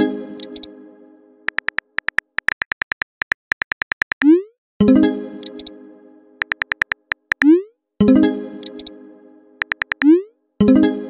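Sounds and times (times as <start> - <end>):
keyboard taps: 1.5 - 4.3, 6.4 - 7.5, 9.6 - 10.1.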